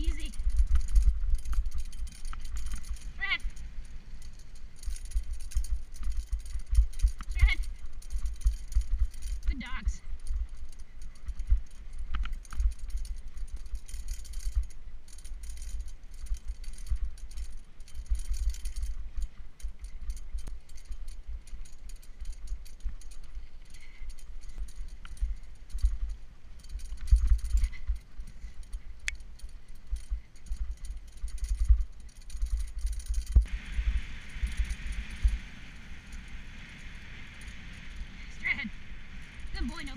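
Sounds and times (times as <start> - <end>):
low rumble from bumps: 0.0 - 13.9
bike rattling and jingling: 0.0 - 39.9
wind on microphone: 24.6 - 39.9.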